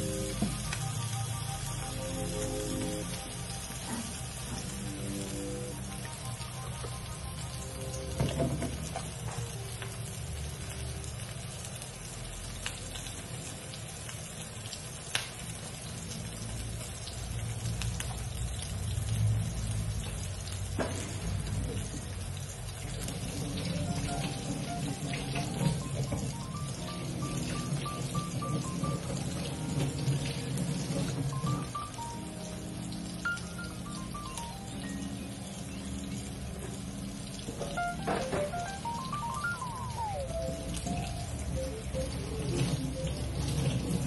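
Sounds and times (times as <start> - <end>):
background music melody: 0.0 - 10.2, 23.4 - 44.0
oil sizzling in frying pan: 0.0 - 44.0.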